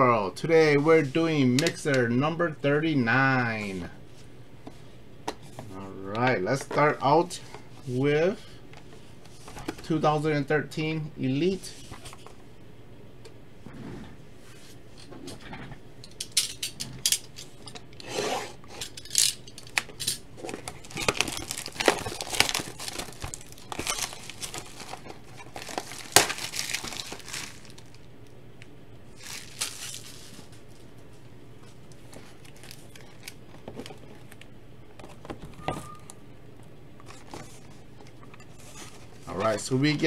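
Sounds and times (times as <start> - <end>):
cardboard box crinkling and tearing: 20.5 - 28.0, 29.2 - 30.4.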